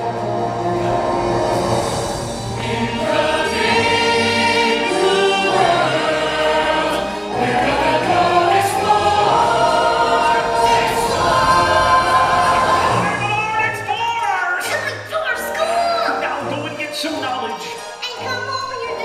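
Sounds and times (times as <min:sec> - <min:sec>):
ensemble singing together: 0:00.0 - 0:13.9
orchestral backing music: 0:00.0 - 0:19.0.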